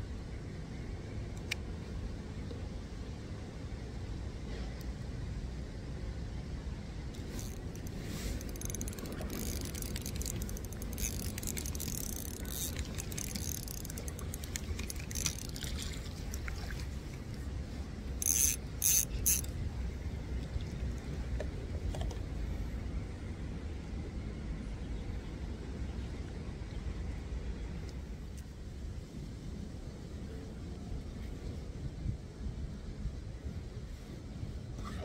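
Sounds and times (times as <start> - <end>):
rapid mechanical ratchet clicking: 7.2 - 15.6, 18.2 - 19.5.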